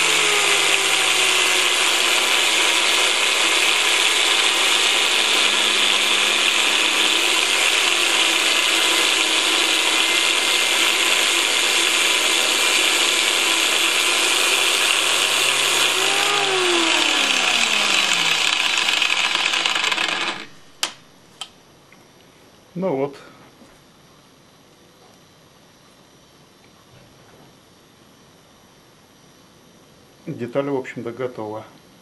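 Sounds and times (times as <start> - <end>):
angle grinder cutting steel: 0.0 - 20.6.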